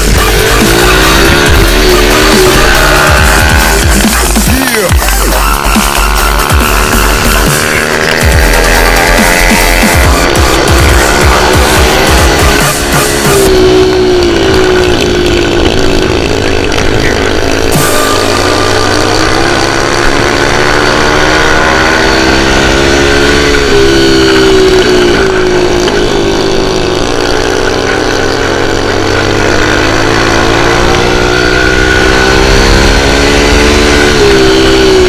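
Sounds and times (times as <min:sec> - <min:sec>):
dirt bike engine revving: 0:00.0 - 0:35.0.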